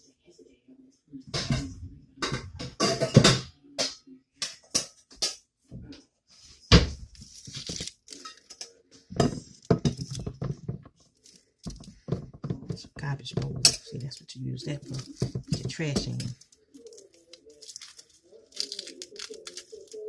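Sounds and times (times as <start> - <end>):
cookware clattering: 1.3 - 5.4, 7.7 - 11.0, 11.7 - 19.8.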